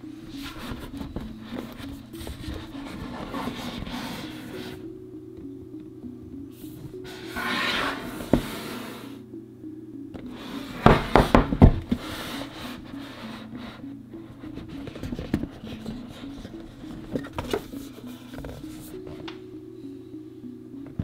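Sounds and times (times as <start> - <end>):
quiet background music: 0.0 - 21.0
box lid sliding off: 7.1 - 9.1
cardboard boxes knocking: 10.8 - 12.0.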